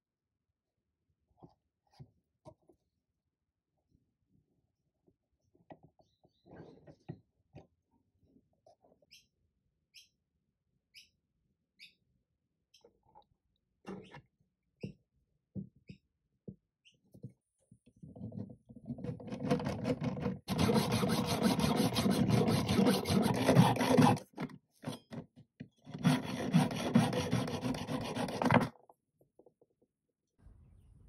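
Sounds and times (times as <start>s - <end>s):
hacksaw cutting metal: 20.5s - 24.3s, 25.9s - 28.7s.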